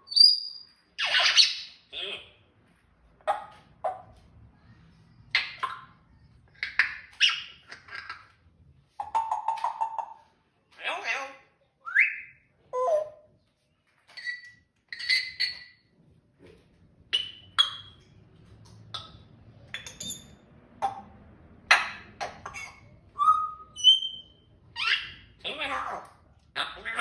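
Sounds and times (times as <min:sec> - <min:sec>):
parrot whistling: 0:22.4 - 0:25.2.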